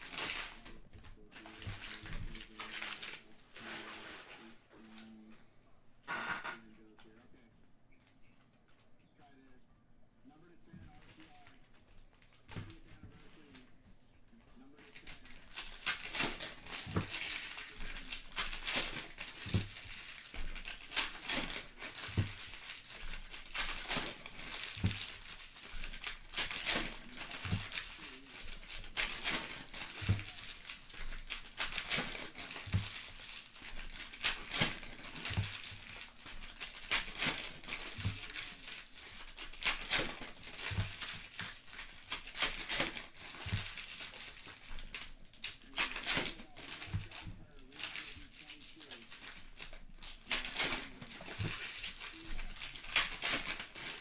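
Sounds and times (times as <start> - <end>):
card pack wrappers tearing and crinkling: 0.0 - 5.3, 10.9 - 13.8, 14.6 - 54.0.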